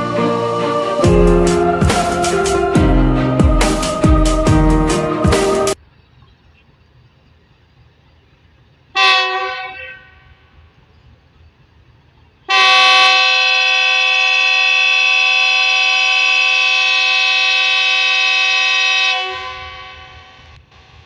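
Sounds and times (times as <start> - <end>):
locomotive horn blast: 9.0 - 10.4, 12.5 - 20.4.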